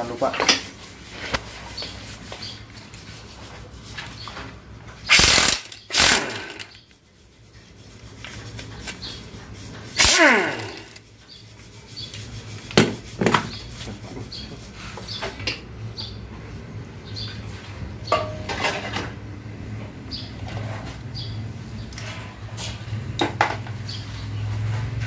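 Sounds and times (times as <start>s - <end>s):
power wrench bursts: 5.1s - 6.8s, 10.0s - 11.1s.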